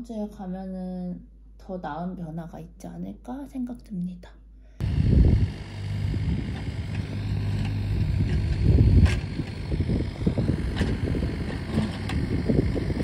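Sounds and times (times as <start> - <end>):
diesel engine running: 4.8 - 13.0
wind buffeting microphone: 4.8 - 13.0.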